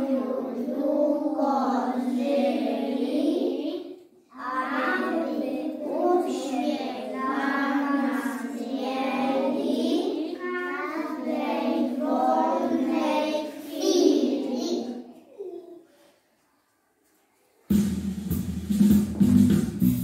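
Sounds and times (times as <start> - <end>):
young children singing: 0.0 - 15.8.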